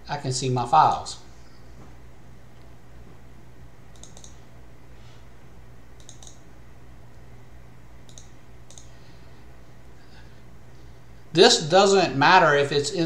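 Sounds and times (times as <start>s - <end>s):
low electrical hum: 0.0s - 13.0s
mouse button clicks: 4.0s - 4.4s, 6.0s - 6.4s, 8.1s - 8.9s.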